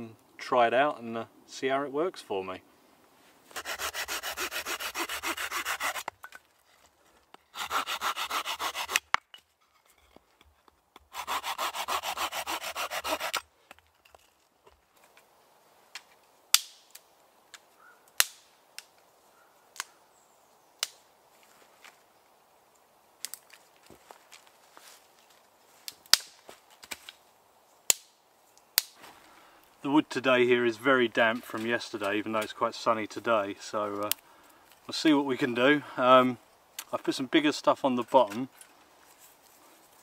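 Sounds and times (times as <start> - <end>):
hand saw cutting a branch: 3.5 - 6.2, 7.5 - 9.2, 11.0 - 13.5.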